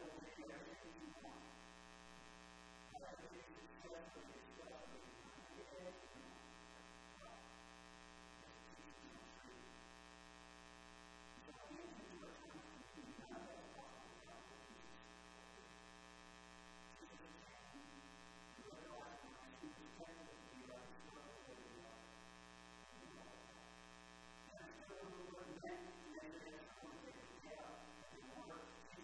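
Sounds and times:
faint man's voice: 0.0 - 1.5, 2.9 - 6.5, 8.4 - 9.8, 11.4 - 15.8, 16.9 - 22.2, 22.9 - 23.7, 24.5 - 29.0
electrical mains hum: 0.0 - 29.0.

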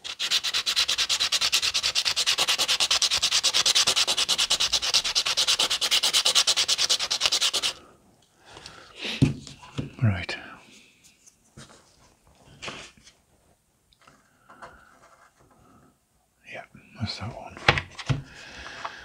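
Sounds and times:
wood sanding strokes: 0.0 - 7.8.

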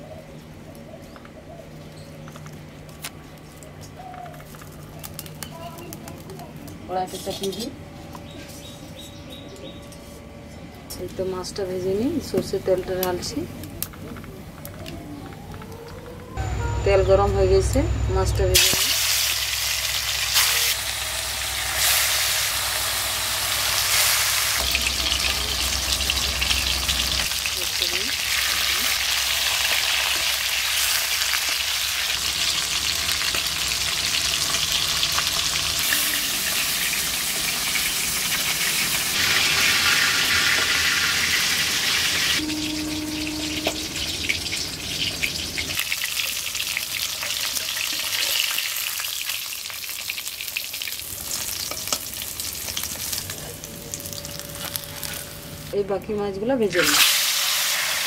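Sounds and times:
fish sizzling in hot oil: 18.6 - 53.4, 56.7 - 58.0.

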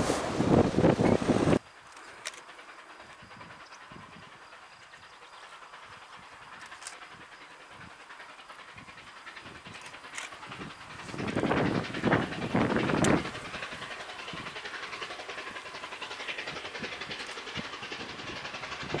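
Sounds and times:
wind gust on microphone: 0.0 - 1.6, 10.5 - 14.6
distant train approaching: 0.0 - 19.0.

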